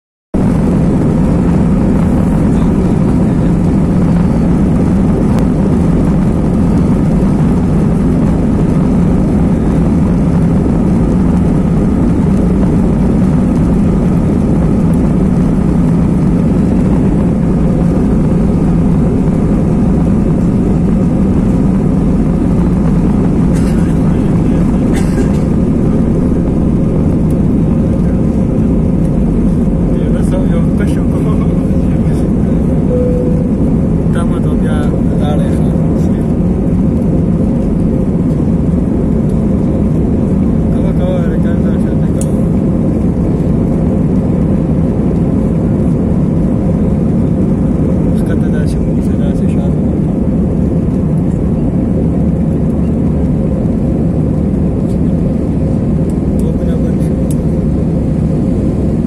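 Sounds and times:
jet engines roaring in cabin: 0:00.4 - 0:59.0.

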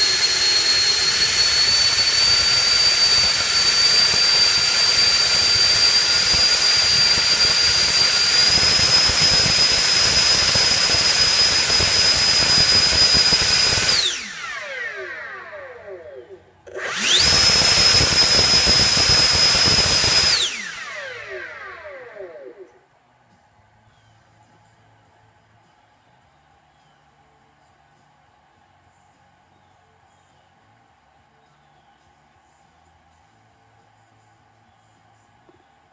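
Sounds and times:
electric ducted fan whining: 0:00.0 - 0:23.0.

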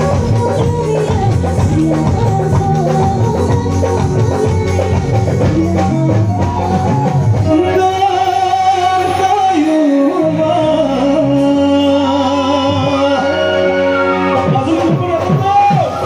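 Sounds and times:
live band music: 0:00.0 - 0:16.0
man singing: 0:00.0 - 0:16.0.

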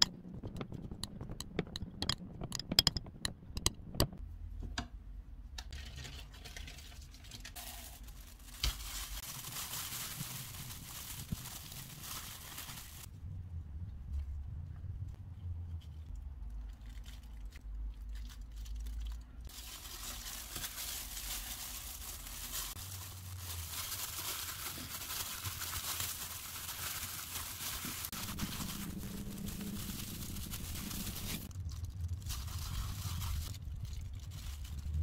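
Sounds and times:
plastic gloves crinkling: 0:07.2 - 0:13.1, 0:16.5 - 0:35.0.

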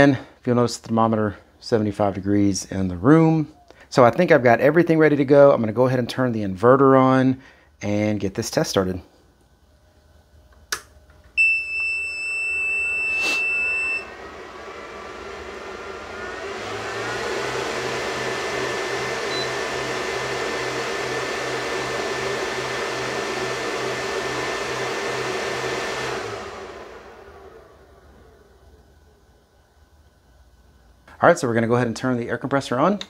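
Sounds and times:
cooling fan whirring: 0:00.0 - 0:33.0
high startup beep: 0:19.3 - 0:19.6.

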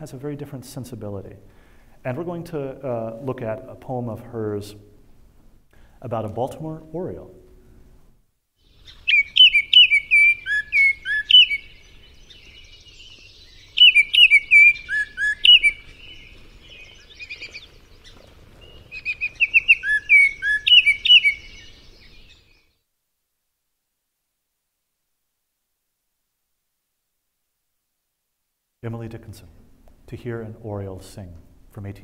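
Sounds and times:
faint background hiss: 0:00.0 - 0:32.0
bird song whistled notes: 0:08.6 - 0:22.8.

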